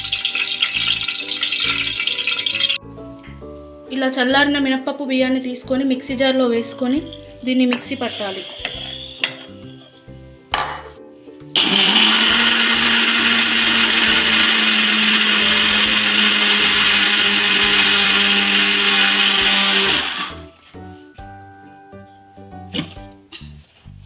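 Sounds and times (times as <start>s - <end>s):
electric mixer grinder grinding: 11.6s - 20.5s.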